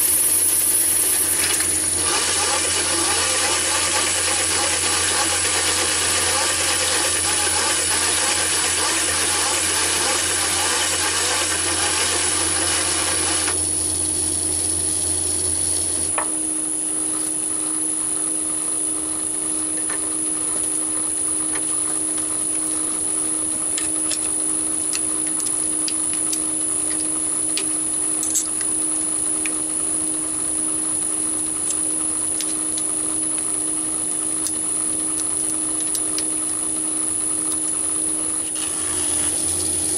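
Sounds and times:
lathe motor hum: 0.0s - 13.6s, 32.2s - 39.9s
hiss of metal cutting: 38.4s - 39.9s.

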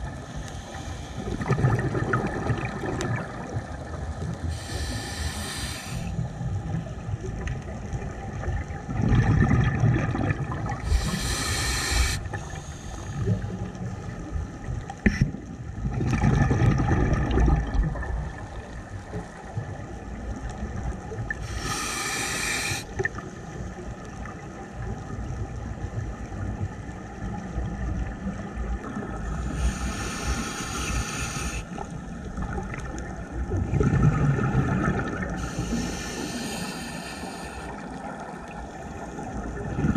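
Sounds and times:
exhaled bubbles rumbling: 0.0s - 5.2s, 6.1s - 11.6s, 12.3s - 21.6s, 22.8s - 30.5s, 31.7s - 36.6s, 37.6s - 39.9s
regulator inhalation hiss: 0.2s - 1.4s, 4.4s - 6.2s, 10.8s - 13.5s, 21.4s - 23.0s, 29.4s - 31.8s, 35.3s - 37.9s.

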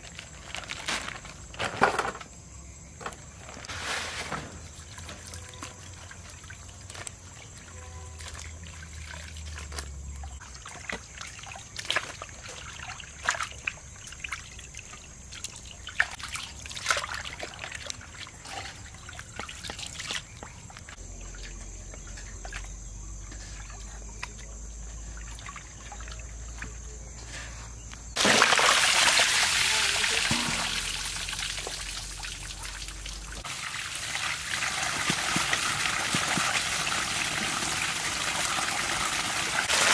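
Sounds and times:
water trickling and sloshing: 3.1s - 27.2s, 28.1s - 39.9s
water pouring: 28.2s - 39.9s.

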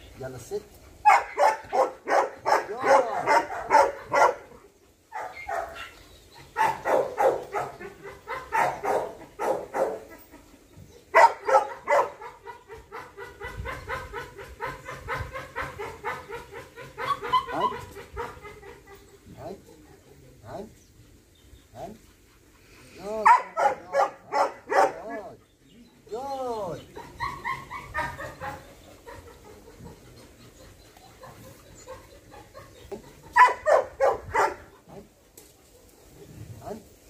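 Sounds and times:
dog barking: 1.1s - 4.4s, 5.2s - 5.9s, 6.6s - 7.8s, 8.5s - 10.0s, 11.2s - 12.4s, 23.2s - 25.2s, 33.4s - 34.6s.

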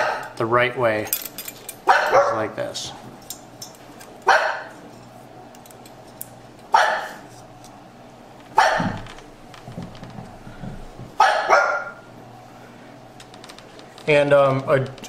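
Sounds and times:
dog barking: 0.0s - 0.3s, 1.9s - 2.4s, 4.3s - 4.7s, 6.7s - 7.2s, 8.6s - 9.0s, 11.2s - 12.0s.

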